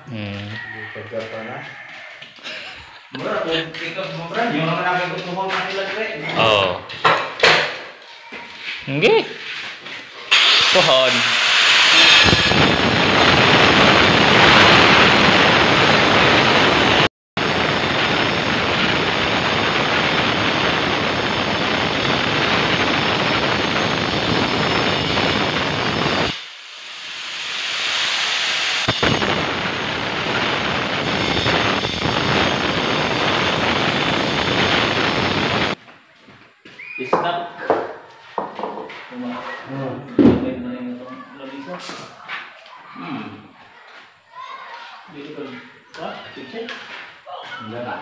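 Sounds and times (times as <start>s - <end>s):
power cutter cutting tiles: 10.3s - 12.9s, 23.1s - 34.9s.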